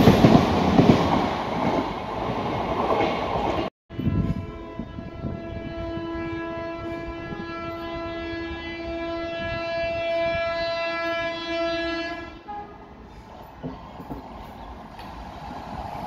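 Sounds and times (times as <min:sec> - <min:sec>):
train rumbling on track: 0:00.0 - 0:16.0
train horn blast: 0:03.9 - 0:13.2.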